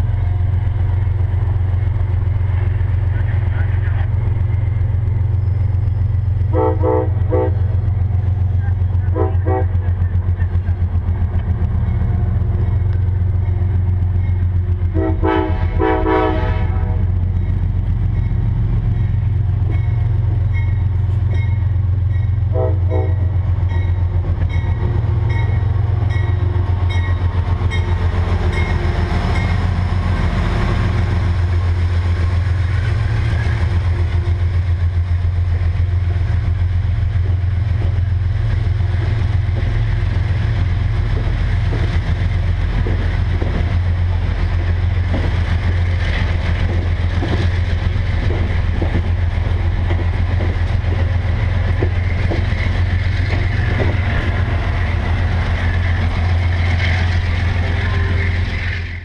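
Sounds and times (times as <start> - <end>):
locomotive rumble: 0.0 - 59.0
train coaches rolling on rails: 0.0 - 59.0
train horn blowing: 6.5 - 7.7, 9.1 - 9.9, 14.9 - 17.1, 22.5 - 23.4.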